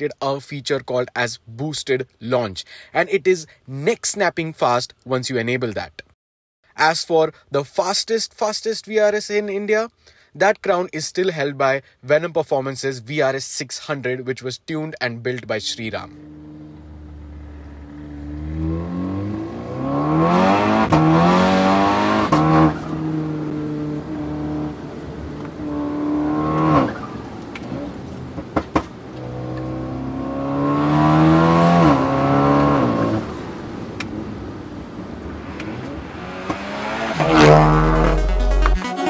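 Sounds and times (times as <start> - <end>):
car engine accelerating hard: 16.1 - 38.8
sharp crack at gear shifts: 35.2 - 38.8.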